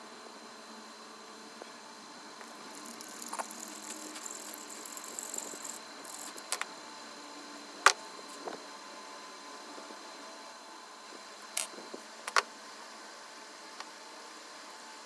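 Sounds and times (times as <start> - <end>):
copper wire rustling: 2.4 - 6.7.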